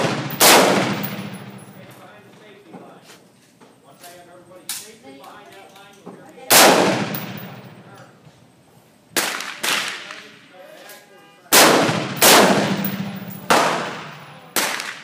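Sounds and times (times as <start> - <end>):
rifle shots echoing: 0.0 - 1.9, 6.5 - 7.8, 11.5 - 15.0.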